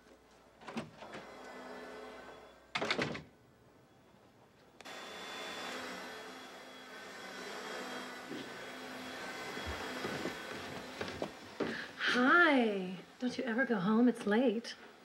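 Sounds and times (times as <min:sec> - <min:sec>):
vacuum cleaner running: 0:01.0 - 0:02.6, 0:04.8 - 0:13.2.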